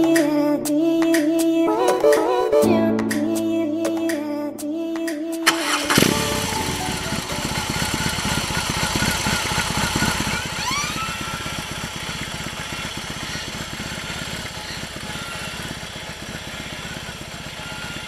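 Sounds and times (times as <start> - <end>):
motorcycle engine idling: 5.5 - 18.0.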